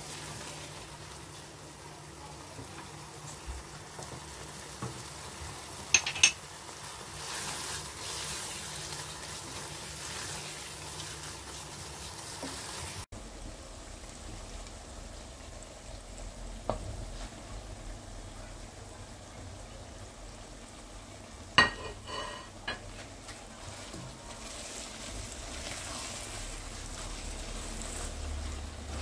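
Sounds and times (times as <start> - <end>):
meat sizzling in a pan: 0.0 - 18.0, 20.1 - 29.0
spoon knocking on pan: 5.9 - 6.4
onions scraped off a plate: 21.7 - 22.6.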